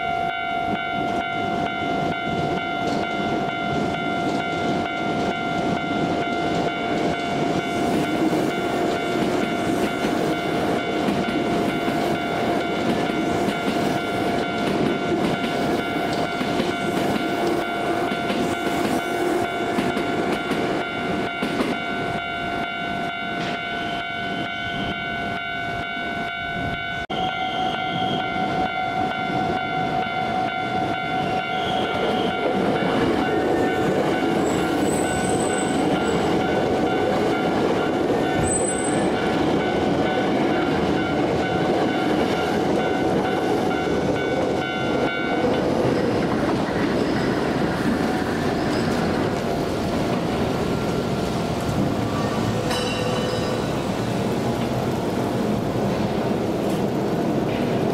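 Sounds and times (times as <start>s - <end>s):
electric train rumbling: 0.0s - 57.9s
wheels clacking over rails: 29.6s - 57.9s
level crossing bell ringing: 52.7s - 53.8s.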